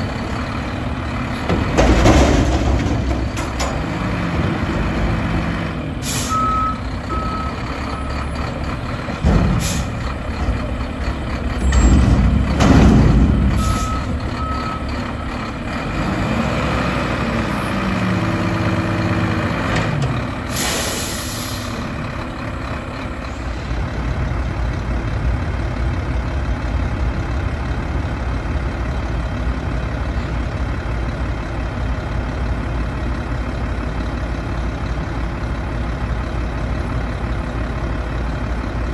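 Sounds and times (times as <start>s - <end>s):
truck engine revving: 0.0s - 23.9s.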